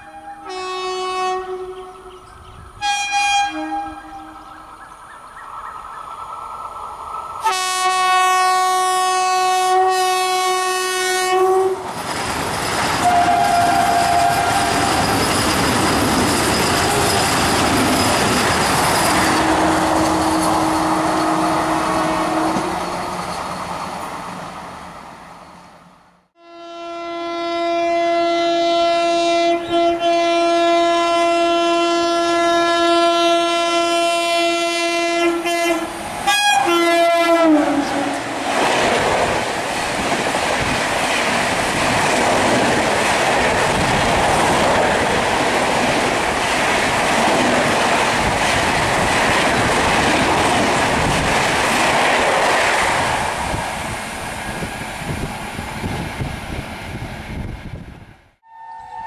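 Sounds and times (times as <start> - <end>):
train horn long blast: 0.0 - 4.6, 7.4 - 11.9, 13.0 - 15.0, 19.3 - 22.9, 26.4 - 38.4, 58.4 - 59.0
train wheels clattering on rails: 11.8 - 21.6, 38.2 - 53.8.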